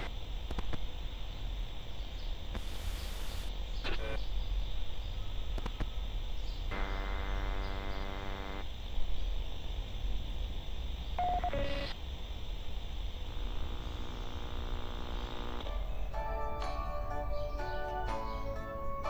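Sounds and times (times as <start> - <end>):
radio static hiss: 0.0 - 1.2, 2.5 - 4.4, 5.5 - 9.1, 11.2 - 15.8
radio whistling tones: 2.6 - 4.2, 11.2 - 11.9.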